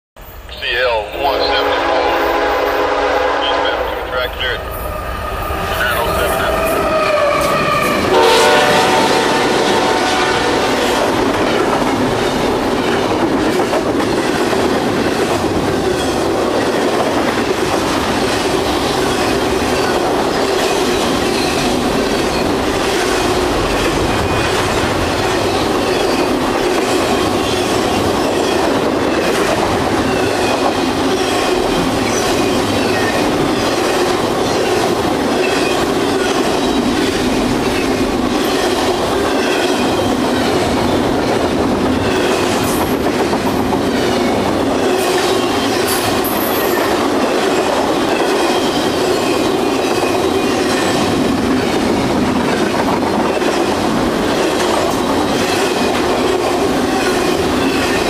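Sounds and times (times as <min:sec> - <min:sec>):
diesel locomotives passing: 0:00.2 - 0:58.0
train horn: 0:01.3 - 0:04.6, 0:05.2 - 0:11.2.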